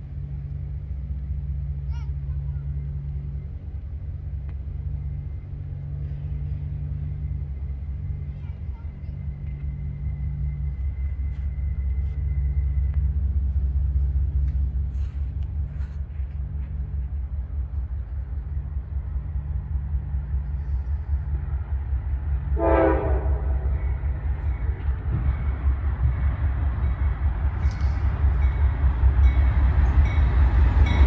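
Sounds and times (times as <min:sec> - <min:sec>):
freight train rumbling: 0:00.0 - 0:31.0
locomotive air horn: 0:22.5 - 0:23.8.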